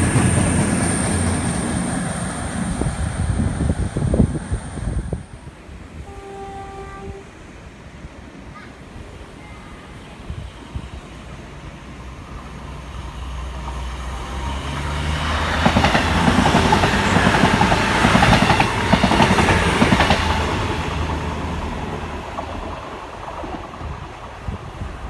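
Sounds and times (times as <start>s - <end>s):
train wheels clattering on rails: 0.0s - 2.8s, 13.5s - 24.7s
train engine hum: 0.0s - 25.0s.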